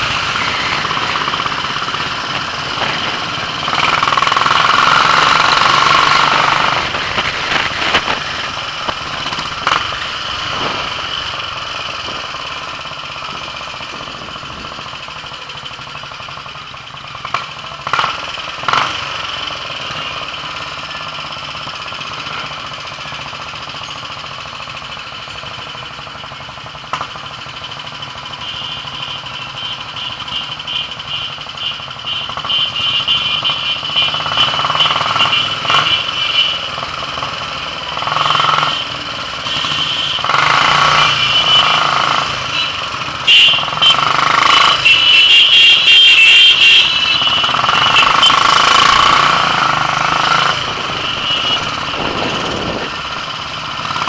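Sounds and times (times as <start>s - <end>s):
motorcycle engine running: 0.0s - 54.0s
town traffic: 0.0s - 54.0s.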